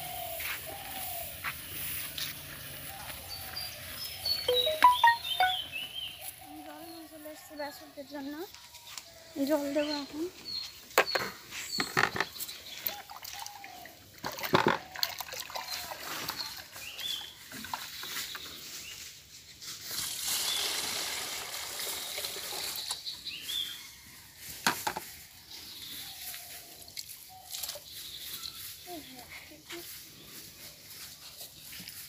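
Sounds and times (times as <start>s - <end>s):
water pouring into basin: 12.8s - 16.8s, 20.0s - 23.0s.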